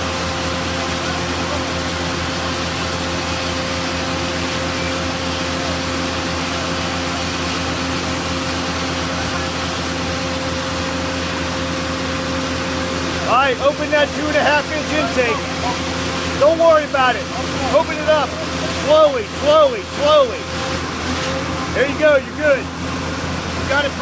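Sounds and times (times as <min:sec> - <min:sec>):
pump engine droning: 0:00.0 - 0:24.0.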